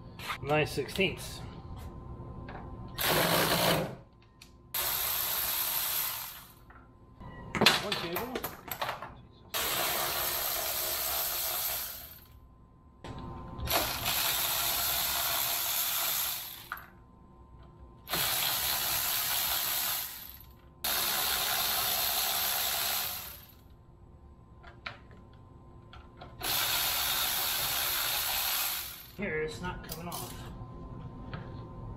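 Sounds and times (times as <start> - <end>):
cordless power ratchet running: 18.1 - 23.6, 26.4 - 29.2.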